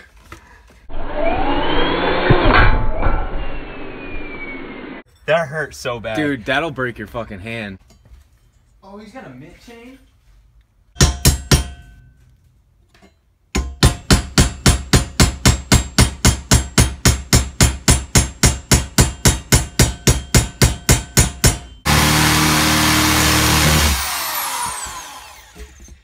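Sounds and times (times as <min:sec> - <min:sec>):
power drill running: 0:00.9 - 0:02.3, 0:21.9 - 0:26.0
hammer striking steel: 0:11.0 - 0:12.2, 0:13.5 - 0:22.0.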